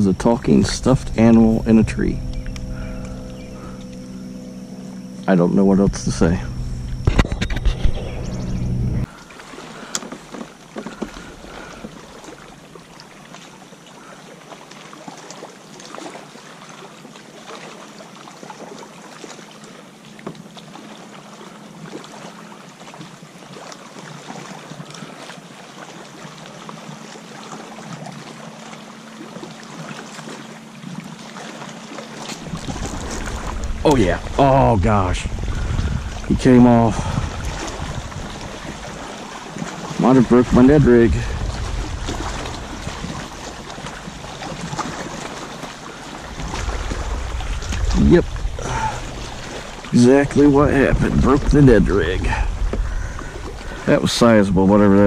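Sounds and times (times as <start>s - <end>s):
faint steady hum: 0.0s - 14.4s, 25.0s - 55.0s
water lapping against kayak hull: 0.0s - 55.0s.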